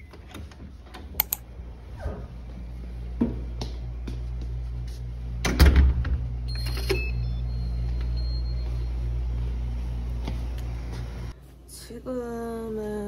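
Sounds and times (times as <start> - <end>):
steady low hum: 0.3 - 13.0
faint high beeps: 6.5 - 9.2.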